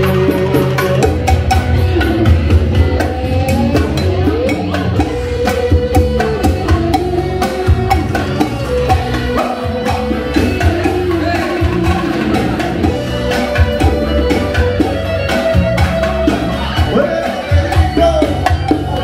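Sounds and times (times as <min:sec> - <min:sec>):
live band music: 0:00.0 - 0:19.0
strong bass line: 0:00.0 - 0:19.0.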